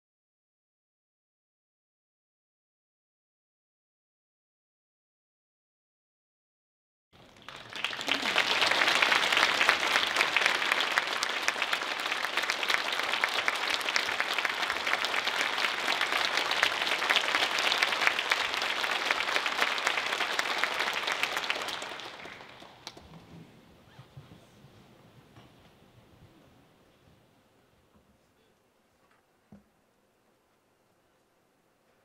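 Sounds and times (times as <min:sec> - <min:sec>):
audience applauding: 0:07.2 - 0:23.1.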